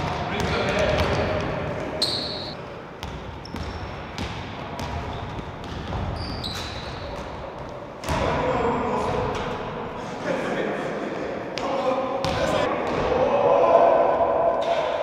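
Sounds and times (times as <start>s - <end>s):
basketball bouncing on gym court: 0.0s - 8.4s, 12.2s - 13.1s
sneaker squeaks: 2.0s - 4.0s, 4.8s - 7.3s.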